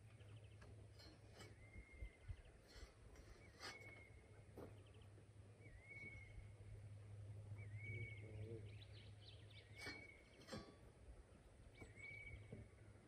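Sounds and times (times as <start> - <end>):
birds chirping: 0.0 - 13.0
low steady hum: 0.0 - 13.0
bird whistling: 5.6 - 6.4, 11.8 - 12.6.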